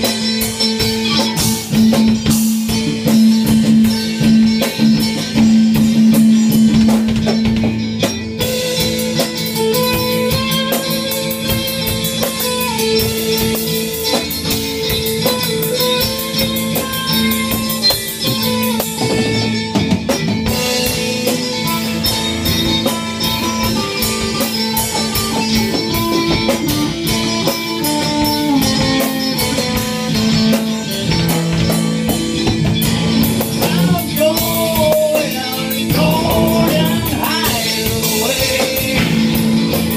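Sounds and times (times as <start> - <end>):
drum kit: 0.0 - 39.9
electric guitar: 0.0 - 39.9
sustained bass note: 19.0 - 20.1.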